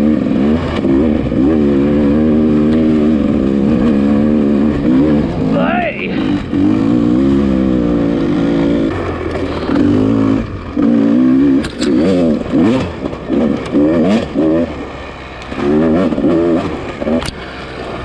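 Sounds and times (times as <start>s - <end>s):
dirt bike engine revving: 0.0s - 18.0s
sharp clicks: 17.2s - 17.4s.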